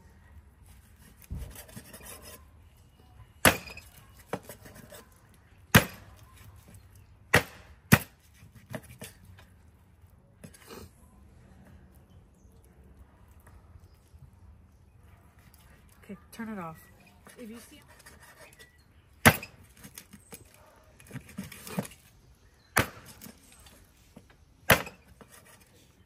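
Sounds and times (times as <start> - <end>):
knife cutting and scraping: 0.6 - 2.5, 3.5 - 5.2, 17.1 - 22.1, 24.7 - 25.9.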